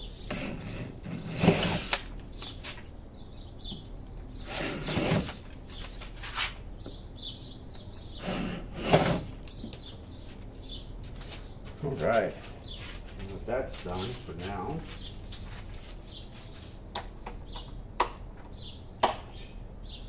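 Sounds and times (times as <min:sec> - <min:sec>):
small birds chirping: 0:00.0 - 0:20.0
short noisy bursts: 0:08.2 - 0:09.4.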